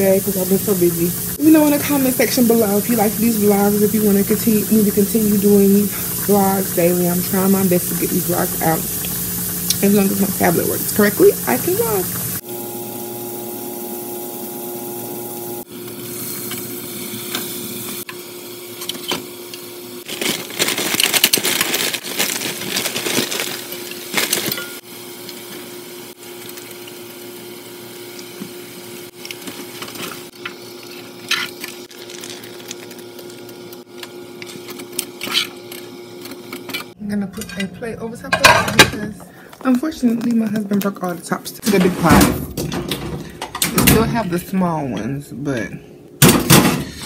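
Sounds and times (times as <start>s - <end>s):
food sizzling in frying pan: 0.0s - 18.7s, 20.0s - 34.5s
electrical hum: 0.0s - 47.0s
plastic bag rustling: 20.0s - 24.8s, 29.2s - 33.8s.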